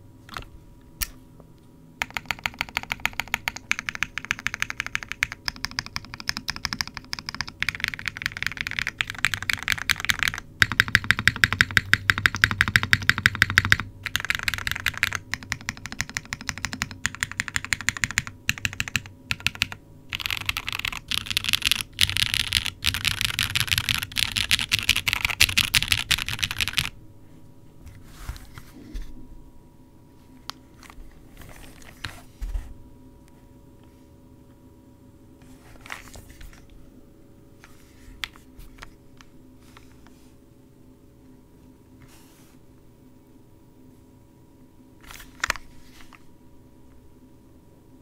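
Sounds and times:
fast typing on mechanical keyboard: 2.0s - 27.0s.

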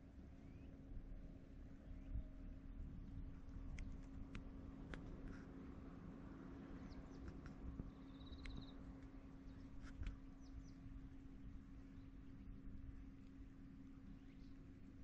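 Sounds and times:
low steady hum: 0.0s - 15.0s
bird chirps: 7.9s - 8.8s.

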